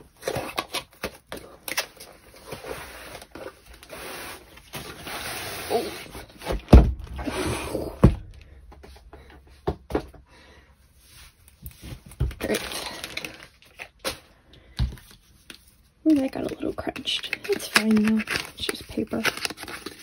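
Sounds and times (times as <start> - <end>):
heavy thumps: 6.5 - 10.3
paper and packaging rustling: 11.2 - 20.0.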